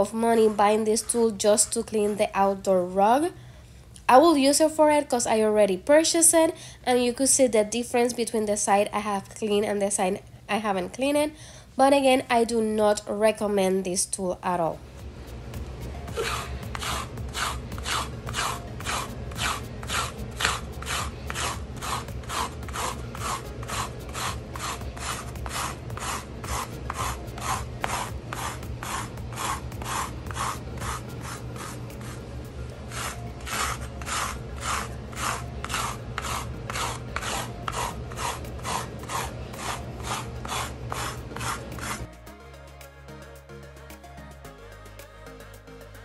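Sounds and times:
toothed blade scraping a rug: 0.0s - 2.6s, 16.1s - 42.1s.

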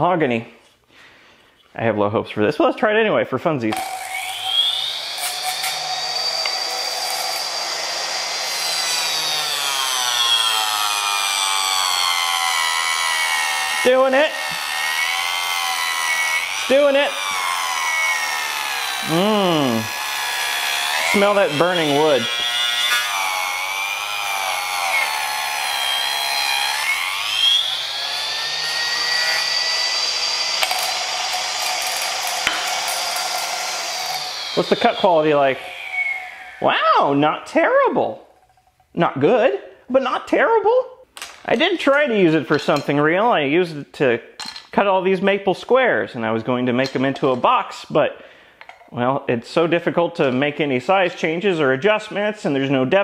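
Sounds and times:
table saw motor whining: 3.7s - 37.1s.

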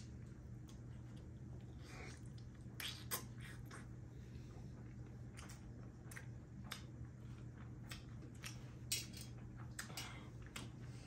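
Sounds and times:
low steady hum: 0.0s - 11.0s
chewing clicks and smacks: 4.8s - 10.9s.

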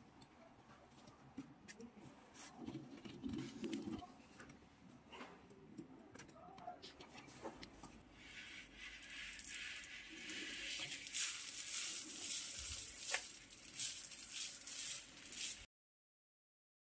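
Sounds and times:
rollers hissing rub on can: 7.9s - 15.7s.

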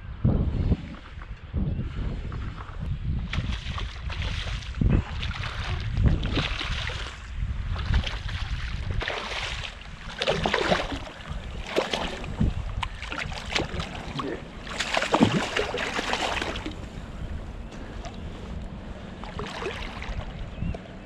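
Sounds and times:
fish splashing in water: 3.3s - 16.8s, 19.2s - 20.4s.

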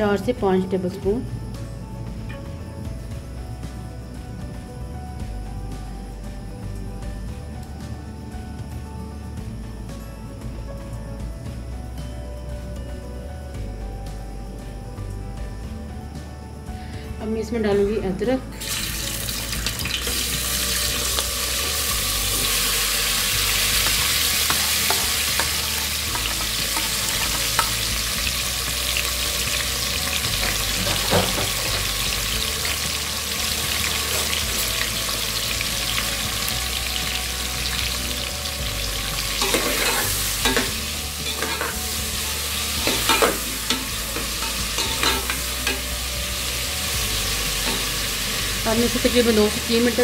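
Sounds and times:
hot oil sizzling in a pot: 18.6s - 50.0s
knocks and clatters in pot: 30.3s - 32.0s, 42.8s - 45.9s.

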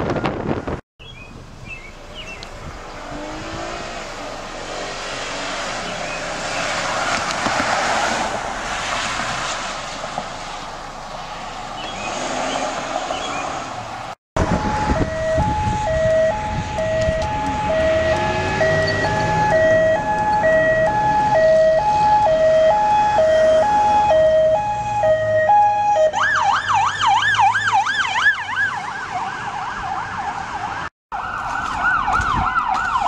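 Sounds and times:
road traffic passing: 0.2s - 33.0s
emergency vehicle hi-lo siren: 14.4s - 33.0s.

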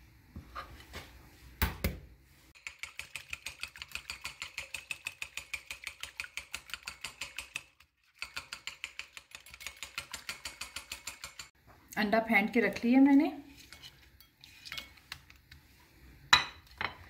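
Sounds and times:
whisk clicking against bowl: 2.6s - 11.5s.

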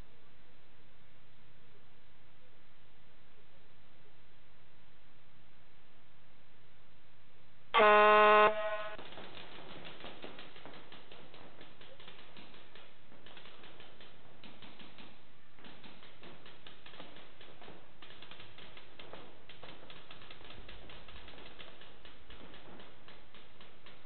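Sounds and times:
paintball markers popping: 9.0s - 24.0s.

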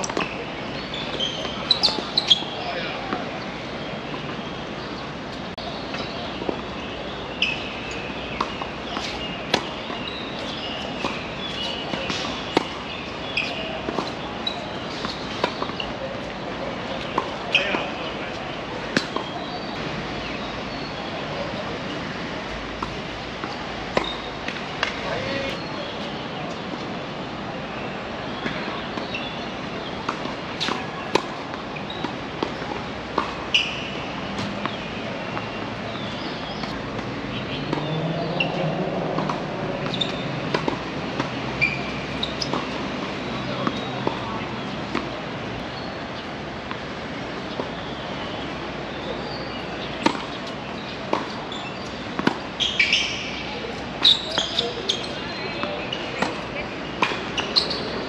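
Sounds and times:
tennis ball bouncing on court: 0.0s - 0.4s, 7.4s - 17.9s, 18.8s - 19.6s, 22.8s - 25.2s, 30.0s - 45.9s, 46.6s - 48.6s, 49.4s - 58.0s
steady background noise: 0.0s - 58.0s
tennis ball struck by rackets: 8.3s - 14.2s, 14.9s - 16.2s, 30.0s - 45.2s, 49.4s - 58.0s.

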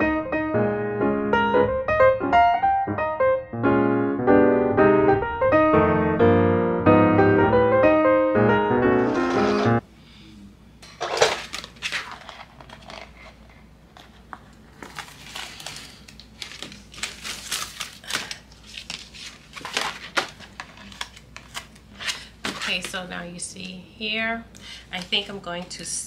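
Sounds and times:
paper rustling and crinkling: 9.1s - 9.8s, 11.0s - 23.0s.

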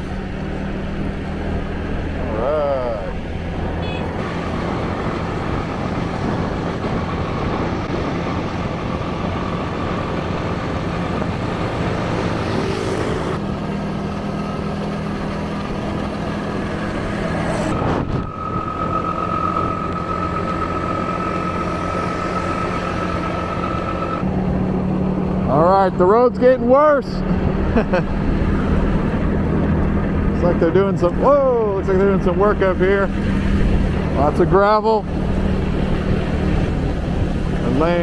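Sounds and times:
rushing wind: 0.0s - 38.0s
steady high whine: 16.6s - 26.6s.

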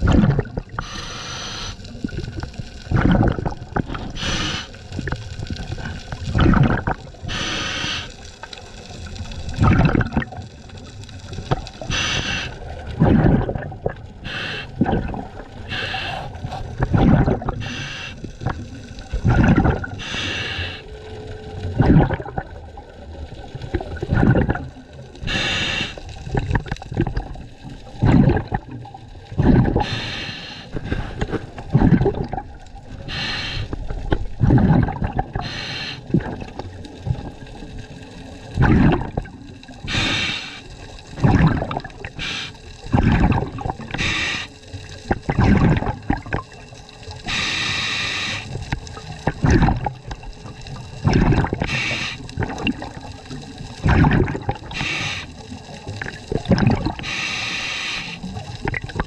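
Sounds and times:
gurgling exhaust bubbles: 0.0s - 20.8s, 21.6s - 30.1s, 30.7s - 57.4s, 58.1s - 59.0s
regulator inhale hiss: 0.8s - 2.0s, 4.0s - 5.0s, 7.2s - 8.3s, 11.8s - 12.7s, 14.2s - 14.8s, 15.6s - 16.4s, 17.6s - 18.4s, 20.0s - 21.0s, 25.2s - 26.1s, 29.8s - 31.4s, 33.0s - 33.8s, 35.4s - 36.1s, 39.8s - 40.9s, 42.2s - 42.8s, 43.9s - 44.8s, 47.3s - 48.7s, 51.6s - 52.3s, 54.7s - 55.5s, 57.0s - 58.4s.

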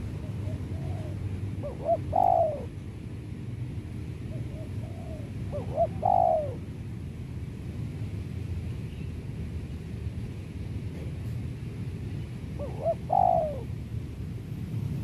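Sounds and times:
dove cooing: 0.0s - 2.8s, 4.3s - 6.6s, 12.6s - 13.7s.

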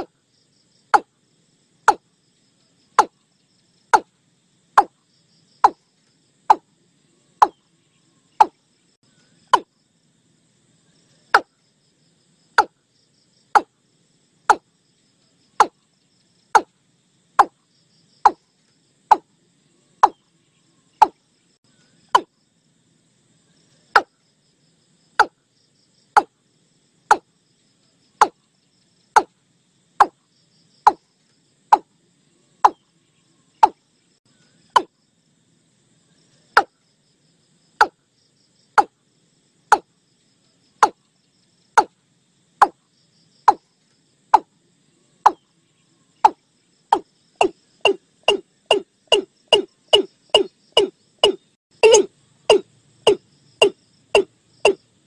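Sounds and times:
high insect trill: 0.0s - 55.0s
bird calling short sharp notes: 47.4s - 54.8s.

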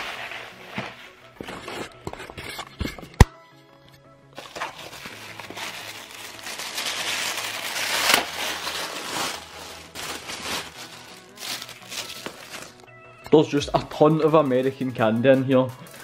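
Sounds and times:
tissue paper crinkling: 0.0s - 1.8s, 4.4s - 12.9s.

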